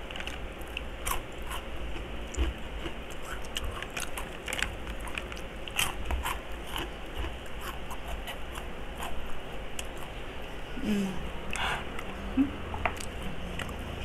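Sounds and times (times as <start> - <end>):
crunching and chewing crispy food: 0.0 - 10.2.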